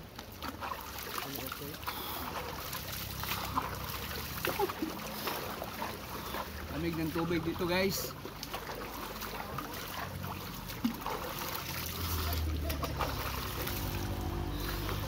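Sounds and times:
flowing stream water: 0.0s - 15.0s
water splashing and sloshing: 0.0s - 15.0s.

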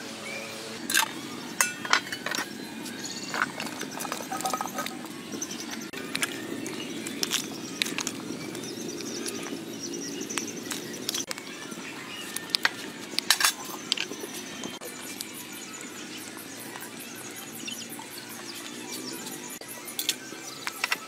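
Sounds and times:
ladle clinking against pot: 0.9s - 2.5s
ladle stirring: 3.2s - 5.1s
soup boiling: 3.3s - 17.0s.

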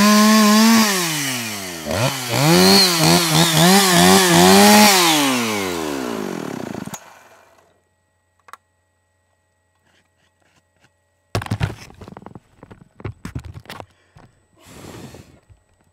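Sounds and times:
chainsaw engine winding down: 0.0s - 7.8s
rustling knocks and thumps: 11.4s - 14.3s.

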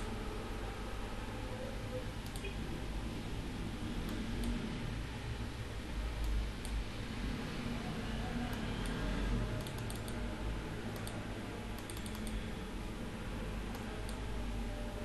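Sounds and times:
steady low hum: 0.0s - 15.0s
keyboard keys clicking: 9.6s - 10.2s, 11.8s - 12.4s.

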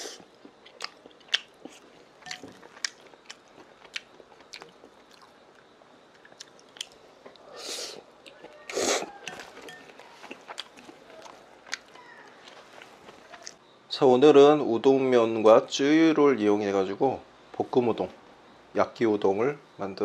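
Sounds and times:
man chewing with clicks: 0.1s - 13.6s.

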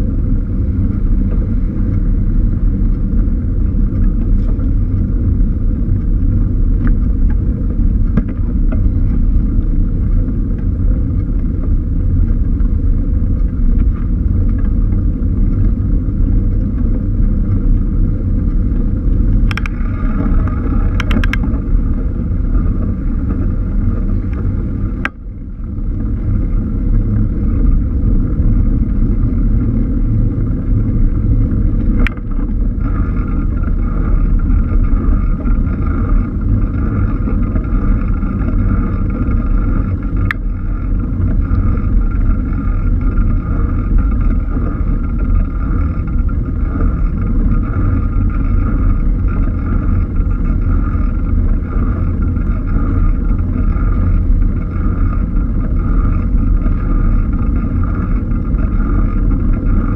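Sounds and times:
road noise: 0.0s - 59.9s
wind buffeting camera: 0.0s - 59.9s
sharp ticks: 19.4s - 21.5s.

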